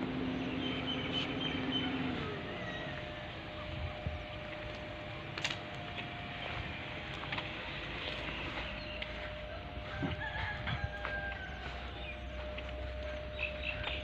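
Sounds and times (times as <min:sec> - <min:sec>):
faint constant hum: 0:00.0 - 0:14.0
rooster crowing: 0:01.7 - 0:03.4, 0:09.4 - 0:12.4.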